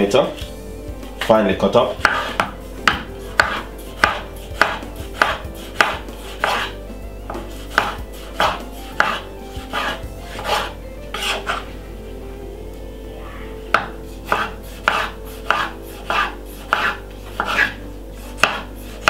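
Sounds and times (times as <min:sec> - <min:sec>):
knife chopping on wooden board: 0:02.0 - 0:06.7, 0:07.3 - 0:11.4, 0:13.7 - 0:18.7.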